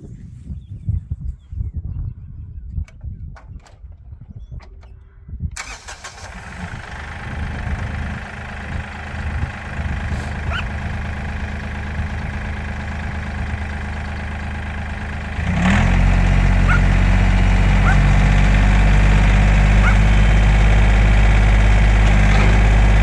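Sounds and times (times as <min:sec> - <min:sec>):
diesel engine starting and idling: 0:05.6 - 0:23.0.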